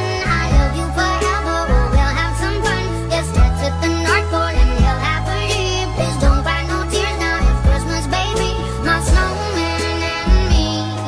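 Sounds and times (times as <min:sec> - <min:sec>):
slow pop song with singing: 0:00.0 - 0:11.0.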